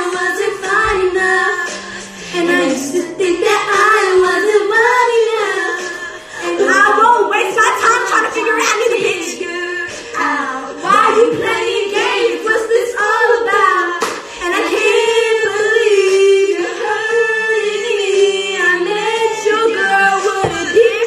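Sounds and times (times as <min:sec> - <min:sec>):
women singing together: 0:00.0 - 0:21.0.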